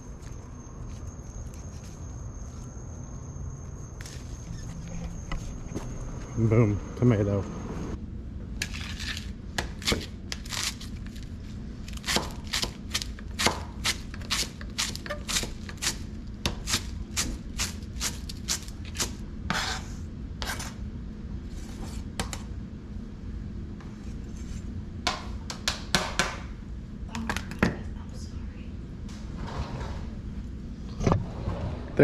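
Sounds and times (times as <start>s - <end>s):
knocks and scrapes on board: 19.5s - 20.7s.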